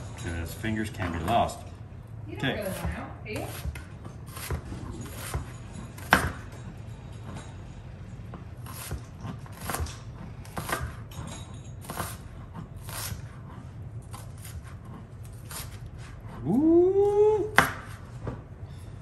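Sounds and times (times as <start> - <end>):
knife chopping on cutting board: 2.7 - 6.6, 8.6 - 11.1, 11.8 - 16.2, 17.5 - 18.4.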